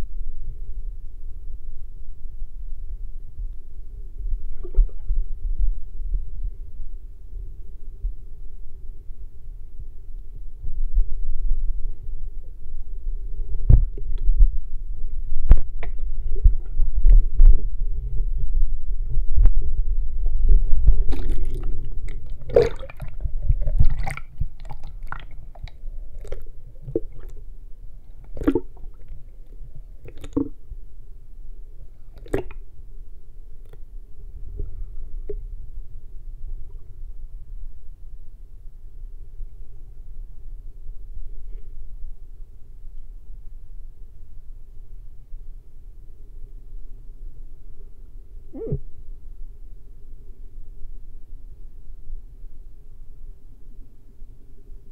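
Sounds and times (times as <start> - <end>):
underwater rumble of moving water: 0.0 - 54.9
underwater knocks and clicks: 13.6 - 14.5, 15.4 - 17.6.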